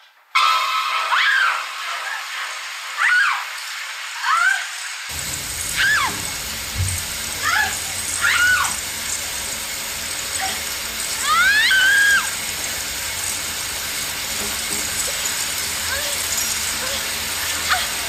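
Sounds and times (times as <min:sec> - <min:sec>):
animal cries sliding in pitch: 0:00.3 - 0:03.6, 0:05.7 - 0:06.2, 0:07.4 - 0:08.8, 0:11.2 - 0:12.4
low hum and hiss: 0:05.1 - 0:18.0.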